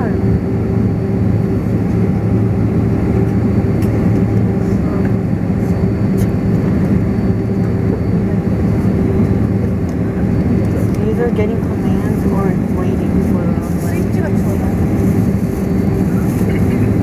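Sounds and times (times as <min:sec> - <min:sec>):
jet engines idling: 0:00.0 - 0:17.0.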